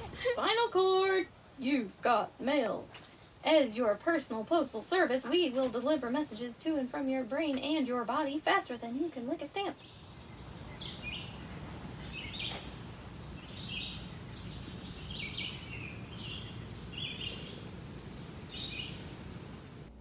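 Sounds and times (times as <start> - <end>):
low outdoor background noise: 0.0 - 20.0
bird chirping: 9.8 - 19.9.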